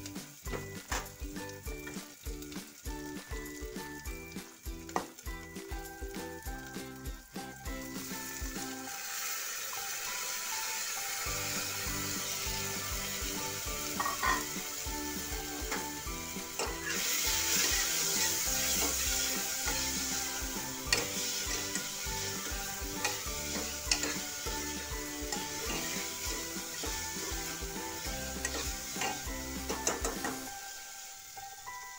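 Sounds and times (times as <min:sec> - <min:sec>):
lentils sizzling in hot oil: 0:00.0 - 0:31.9.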